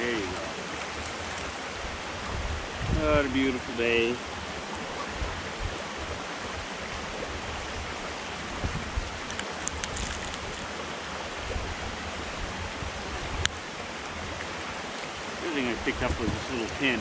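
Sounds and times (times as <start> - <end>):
stream rushing: 0.0 - 17.0
gear rustling in a pack: 9.3 - 10.7.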